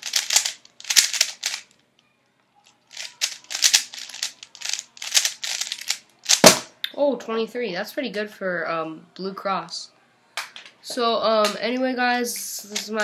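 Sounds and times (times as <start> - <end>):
puzzle cube plastic clicking: 0.0 - 1.7, 2.9 - 6.5.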